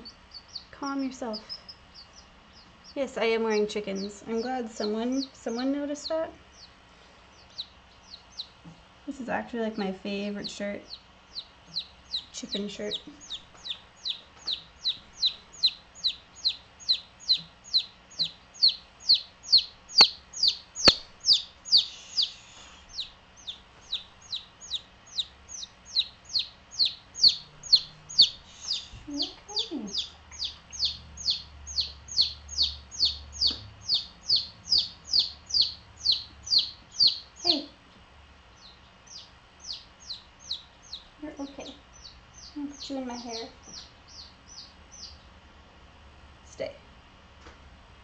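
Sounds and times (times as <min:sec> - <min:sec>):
chick peeping: 0:00.0 - 0:37.8, 0:38.5 - 0:45.4.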